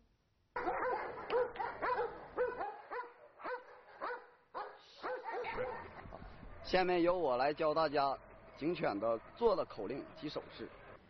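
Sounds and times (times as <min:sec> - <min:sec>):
dogs barking: 0:00.6 - 0:06.6.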